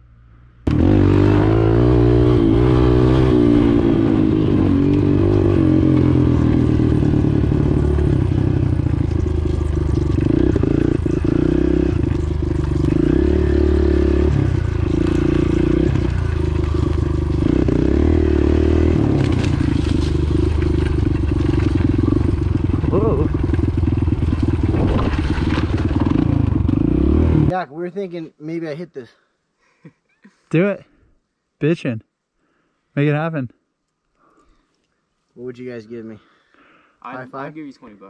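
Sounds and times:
motorbike engine revving: 0.7 - 27.5.

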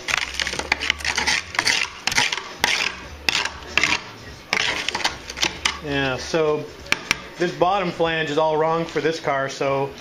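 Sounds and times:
scraper rasping on metal: 0.4 - 5.8.

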